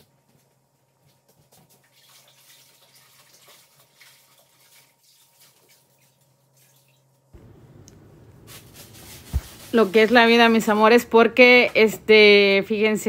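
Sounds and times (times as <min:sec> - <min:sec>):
water running from a tap: 0:01.8 - 0:07.1
water splashes and drips: 0:01.8 - 0:07.3.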